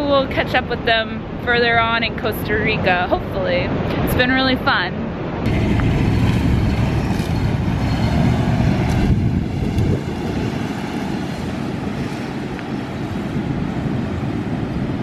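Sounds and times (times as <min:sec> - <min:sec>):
wind on microphone: 0:00.0 - 0:15.0
van engine driving on sand: 0:05.5 - 0:15.0.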